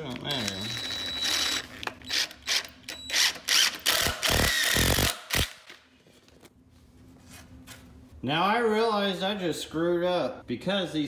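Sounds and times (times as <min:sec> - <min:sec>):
power driver driving screw into wood: 0:01.1 - 0:05.8.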